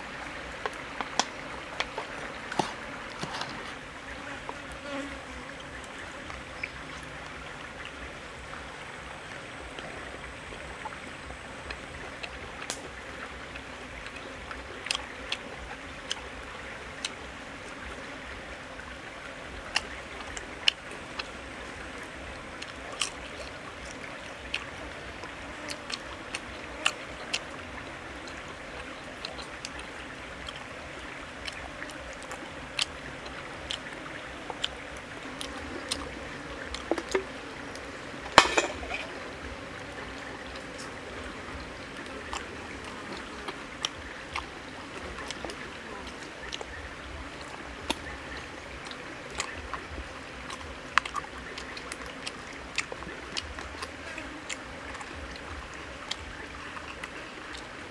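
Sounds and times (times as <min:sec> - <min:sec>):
stream trickling: 0:00.0 - 0:57.9
chopsticks tapping frying pan: 0:38.4 - 0:39.1.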